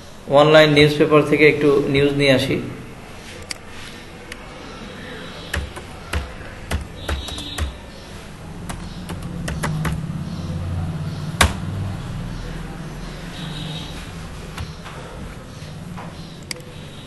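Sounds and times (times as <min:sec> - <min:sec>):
computer keyboard keystrokes: 0:05.5 - 0:07.8, 0:08.7 - 0:10.0.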